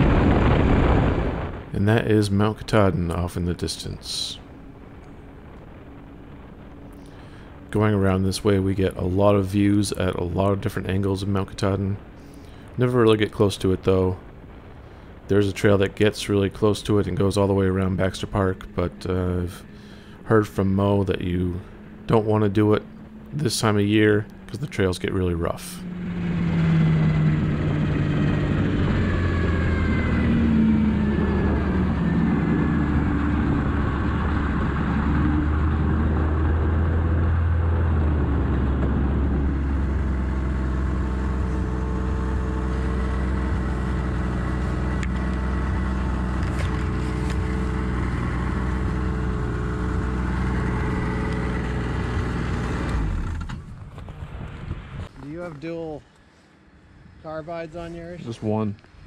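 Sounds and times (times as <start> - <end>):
snowmobile engine running: 15.3 - 53.5.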